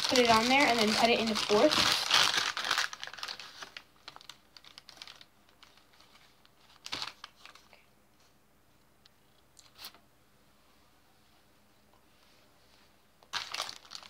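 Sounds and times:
plastic wrapping crinkling: 0.0 - 7.8, 13.2 - 14.0.

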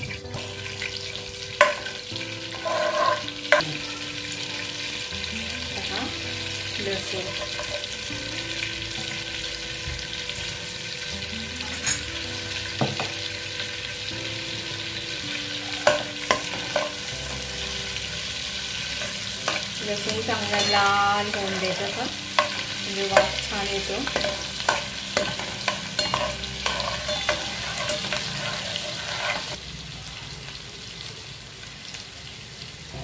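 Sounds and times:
garlic sizzling in oil: 0.0 - 33.0
metal spoon clinking on pan: 1.6 - 3.6, 6.9 - 9.3, 10.3 - 12.1, 15.6 - 17.2, 19.0 - 29.6.

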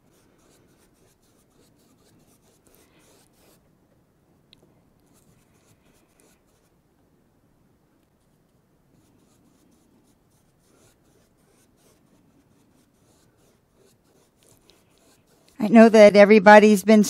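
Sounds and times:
paintbrush scratching on canvas: 0.0 - 3.6, 5.0 - 6.8, 9.0 - 15.9.

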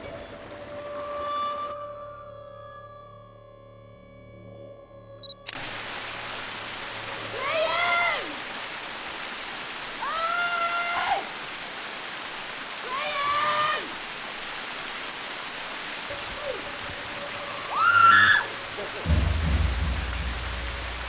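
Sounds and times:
stream water rushing: 5.5 - 21.0
low rumble: 19.0 - 21.0.

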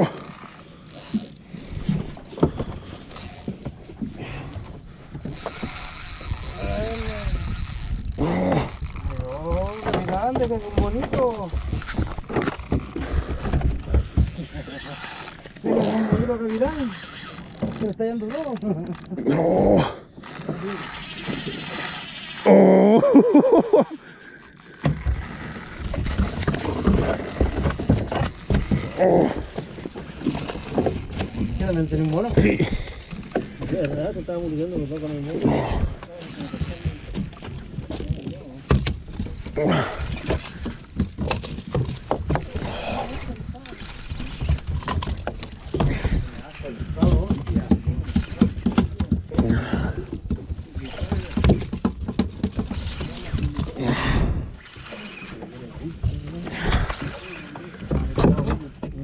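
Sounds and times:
water sloshing against boat hull: 0.0 - 59.0
fishing reel whirring: 0.1 - 3.6, 5.2 - 19.2, 20.2 - 33.5, 36.2 - 38.4
fishing reel clicks: 0.3 - 1.8, 3.1 - 3.5, 5.2 - 10.7, 13.3 - 19.2, 20.2 - 22.6, 36.2 - 37.5.

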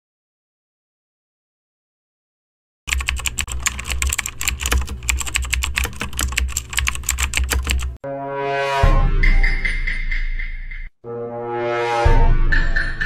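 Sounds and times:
fast typing on keyboard: 2.9 - 8.0.

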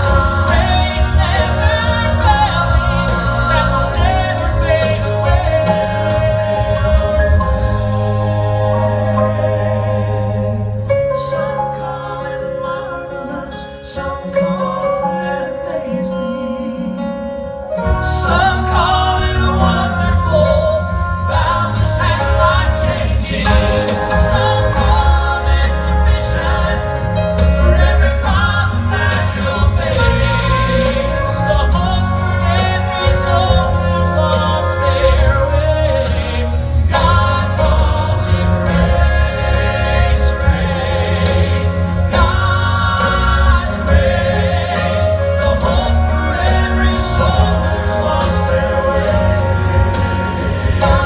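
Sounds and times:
amplified backing music with bass: 0.0 - 51.0
male quartet singing in harmony: 0.0 - 51.0.

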